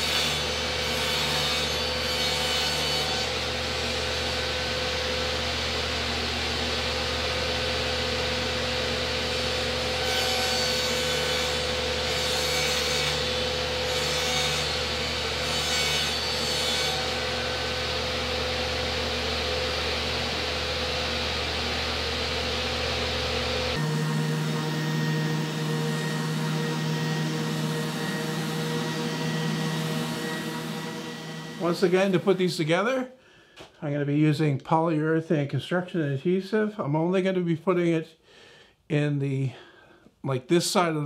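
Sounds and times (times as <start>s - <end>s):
saw blade cutting wood: 0.0s - 4.9s, 9.0s - 20.3s, 23.6s - 32.6s
table saw motor hum: 0.0s - 32.7s.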